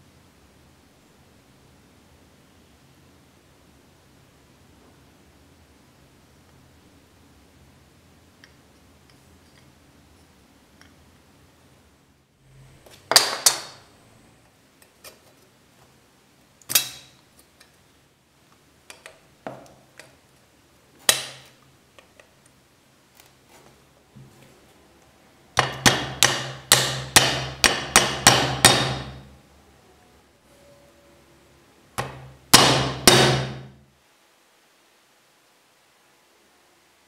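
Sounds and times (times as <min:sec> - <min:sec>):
hammer tapping pins: 0:25.6 - 0:29.2, 0:32.0 - 0:33.7.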